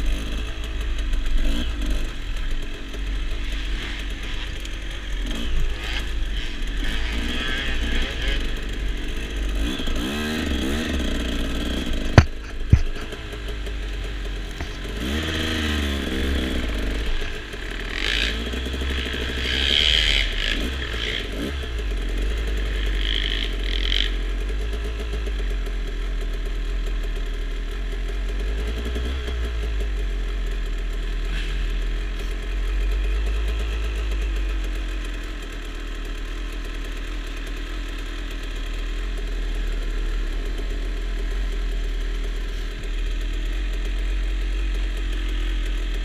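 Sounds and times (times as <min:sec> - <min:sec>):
dirt bike engines revving: 0:00.0 - 0:25.8.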